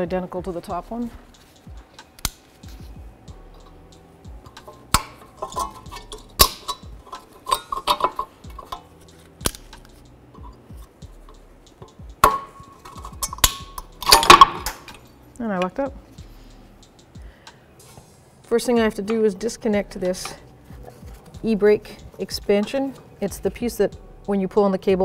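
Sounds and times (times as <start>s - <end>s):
pliers clicking on metal spring: 2.0s - 2.5s, 4.5s - 10.5s, 11.3s - 15.7s.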